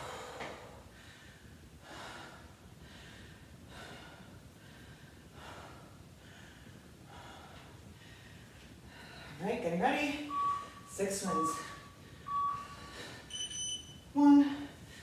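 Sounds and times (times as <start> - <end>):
woman breathing hard: 0.0 - 9.5, 11.5 - 13.4.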